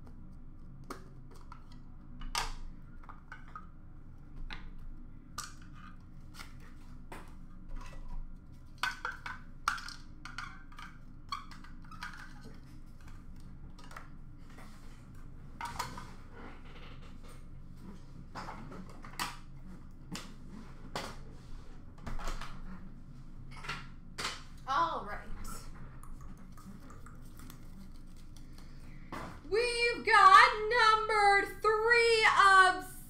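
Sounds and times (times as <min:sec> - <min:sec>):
low steady hum: 0:00.0 - 0:33.0
cards clicking and rustling: 0:27.2 - 0:28.8.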